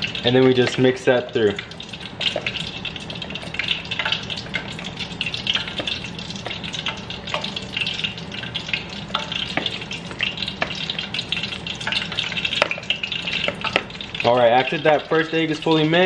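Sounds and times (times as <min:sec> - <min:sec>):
oil sizzling in a pan: 0:00.0 - 0:16.0.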